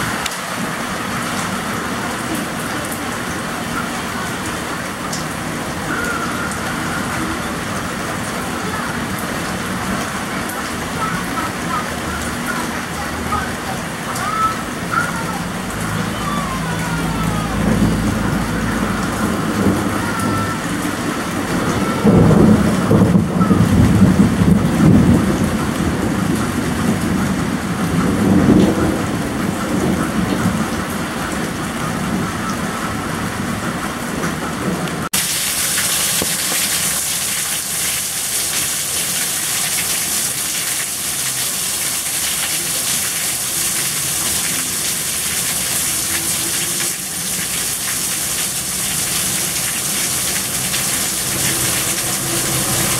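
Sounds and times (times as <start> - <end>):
heavy rain hiss: 0.0 - 52.9
rain falling: 0.0 - 52.9
thunder rumbling: 14.7 - 35.1.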